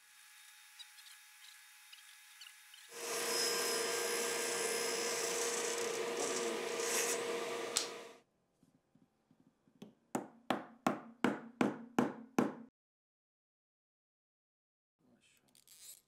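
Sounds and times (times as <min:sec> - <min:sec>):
table saw cutting wood: 0:02.9 - 0:08.2.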